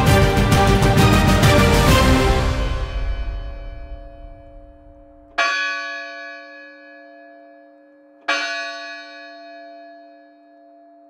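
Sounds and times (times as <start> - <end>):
bell-like chimes ringing: 2.7 - 11.0.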